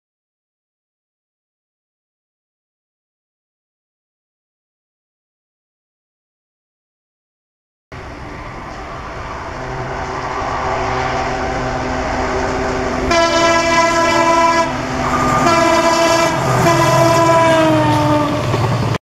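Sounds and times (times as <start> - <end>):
diesel locomotive engine and wheels: 7.9 - 19.0
locomotive horn blasts: 12.9 - 18.5.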